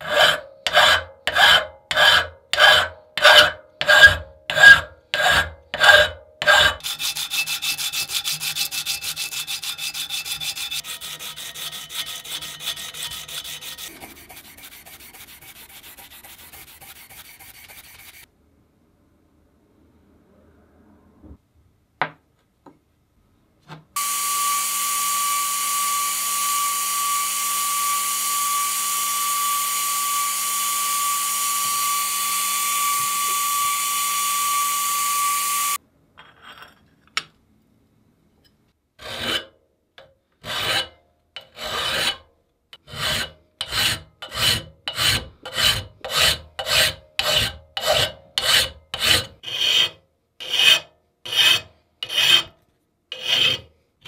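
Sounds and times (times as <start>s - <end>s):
hand file rasping on metal: 0.0s - 18.3s, 40.4s - 42.2s, 42.8s - 53.7s.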